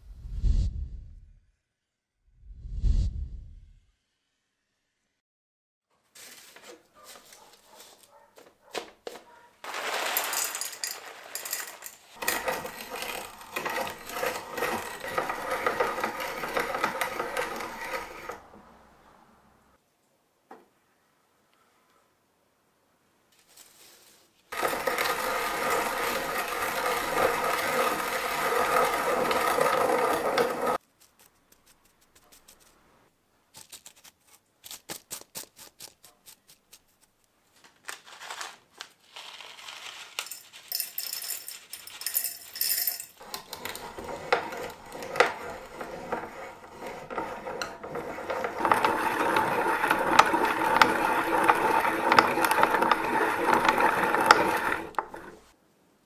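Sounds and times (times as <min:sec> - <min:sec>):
hand-cranked grinder grinding: 0:09.6 - 0:18.7, 0:24.5 - 0:30.8, 0:40.2 - 0:55.6
fingers rubbing powder on paper: 0:30.8 - 0:32.8.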